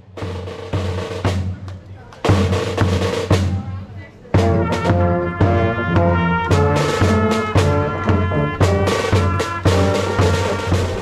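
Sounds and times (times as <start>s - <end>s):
snare and bass drums: 0.0s - 11.0s
brass section playing: 4.3s - 11.0s.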